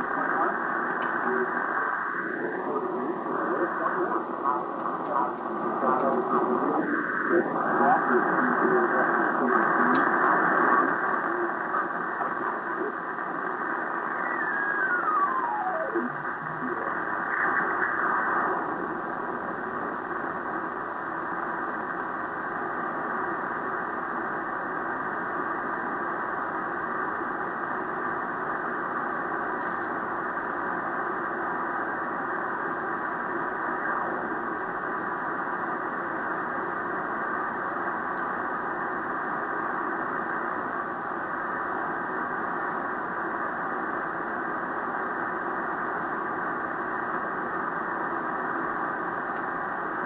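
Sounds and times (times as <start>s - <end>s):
radio static hiss: 0.0s - 50.0s
descending radio whistle: 14.1s - 17.0s.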